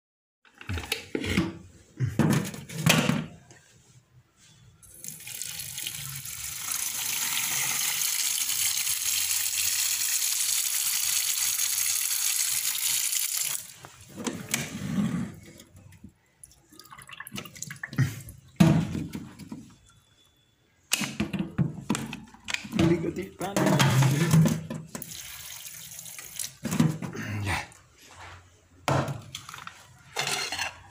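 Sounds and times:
tap water running into pot: 4.9s - 13.7s, 24.9s - 26.7s
metal pot knocks and clatter: 21.2s - 25.0s.

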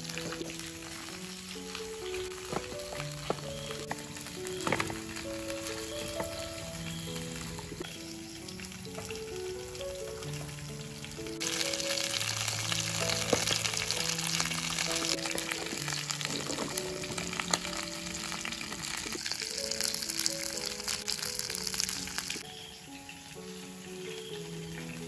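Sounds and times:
food sizzling in hot oil: 0.0s - 25.0s
gentle background music: 0.0s - 25.0s.

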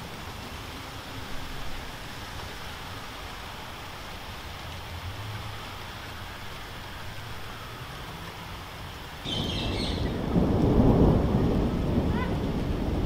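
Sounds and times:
rain falling: 0.0s - 13.0s
thunder rumbling: 9.2s - 13.0s.

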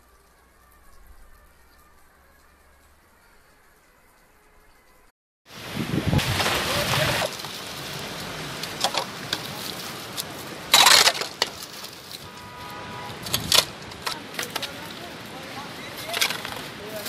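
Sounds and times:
tyres running through wet slush: 5.5s - 17.0s
shovel scraping slush and ice: 6.1s - 12.3s.

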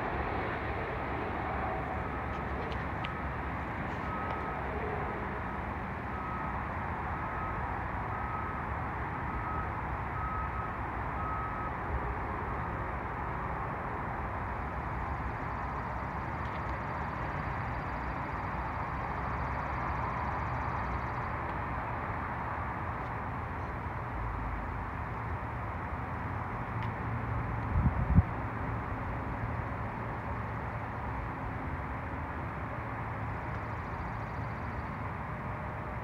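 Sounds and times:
vehicle running: 0.0s - 36.0s
reversing alarm beeping: 4.0s - 4.6s, 6.0s - 8.6s, 9.3s - 11.8s.

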